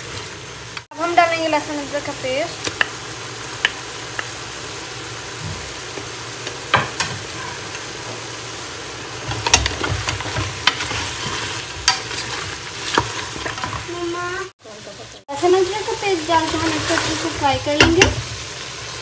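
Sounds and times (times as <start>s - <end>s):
meat and onions sizzling in oil: 0.0s - 19.0s
wooden spoon clacking against pot: 9.4s - 11.0s, 11.8s - 13.9s.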